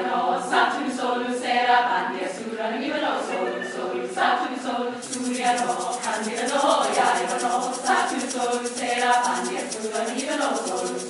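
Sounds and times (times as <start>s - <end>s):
choir singing: 0.0s - 11.0s
shaker rhythm: 4.9s - 11.0s.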